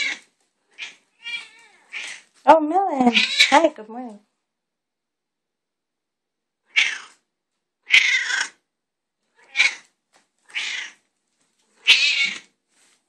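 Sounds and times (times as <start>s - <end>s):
cat meowing: 0.0s - 2.3s, 3.1s - 3.6s, 6.7s - 7.2s, 7.8s - 8.6s, 9.3s - 9.9s, 10.5s - 11.0s, 11.8s - 12.5s.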